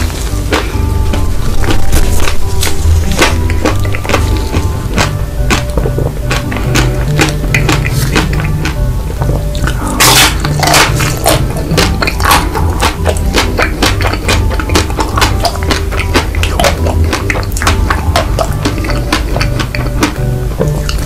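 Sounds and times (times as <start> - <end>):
biting and chewing ice cream bar: 0.0 - 21.0
chocolate shell crunching: 0.0 - 21.0.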